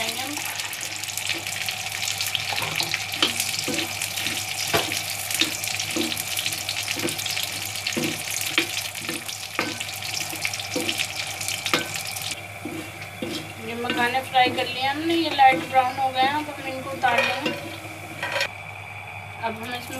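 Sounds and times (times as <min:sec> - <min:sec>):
nuts sizzling in hot fat: 0:00.0 - 0:18.6
metal spoon scraping pan: 0:02.5 - 0:18.5.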